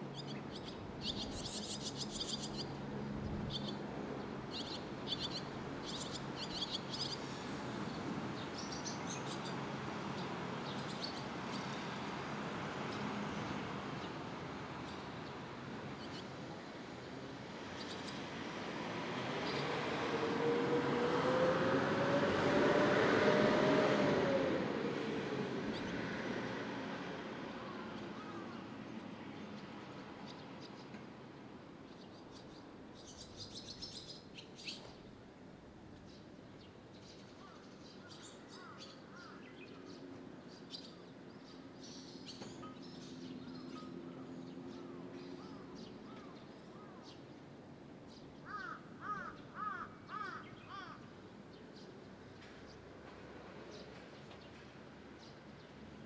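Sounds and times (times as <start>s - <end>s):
vehicle passing by: 17.5s - 29.8s.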